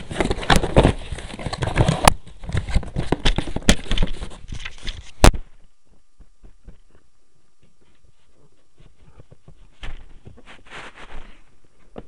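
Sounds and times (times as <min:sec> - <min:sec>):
cardboard box rustling and knocking: 0:00.0 - 0:04.4.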